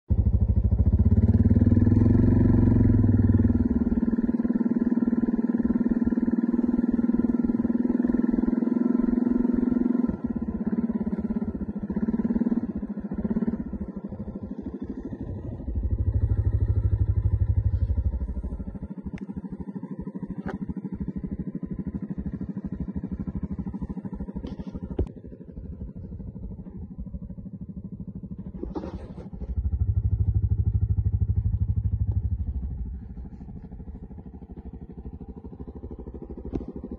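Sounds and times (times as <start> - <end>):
quad bike engine running: 0.1 - 36.9.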